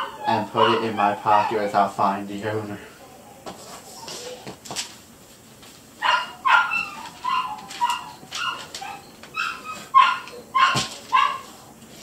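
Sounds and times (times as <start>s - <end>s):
dog barking: 0.0s - 1.7s, 6.0s - 11.5s.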